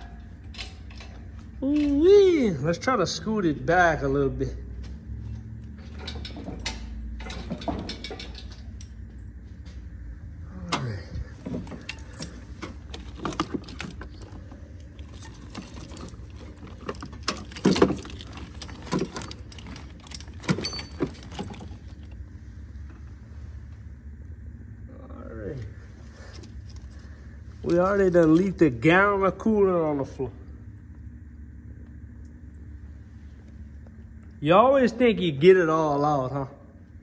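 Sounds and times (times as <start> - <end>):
metal clanks and knocks: 0.0 - 2.1, 5.1 - 9.8, 10.7 - 22.2
metal jingling rattles: 5.2 - 9.2, 11.2 - 22.3, 26.3 - 29.1.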